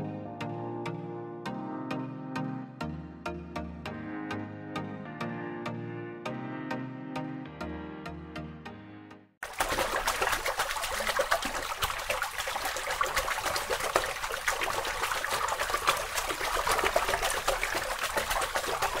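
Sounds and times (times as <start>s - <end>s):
water trickling: 9.4s - 19.0s.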